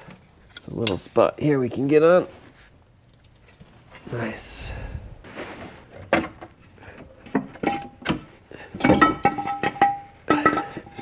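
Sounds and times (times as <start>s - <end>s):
metal tools clinking: 8.8s - 11.0s.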